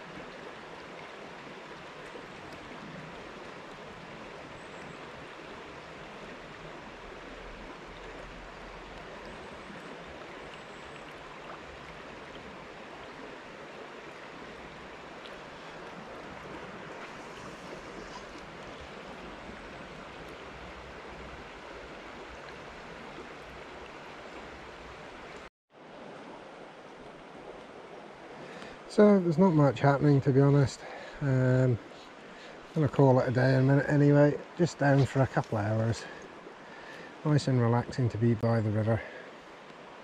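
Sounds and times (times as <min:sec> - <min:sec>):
river water rushing: 0:00.0 - 0:40.0.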